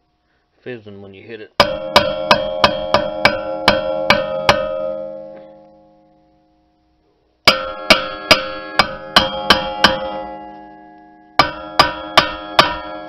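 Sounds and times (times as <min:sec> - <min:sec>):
hammer blows on ringing metal: 0:01.6 - 0:06.1, 0:07.5 - 0:13.0.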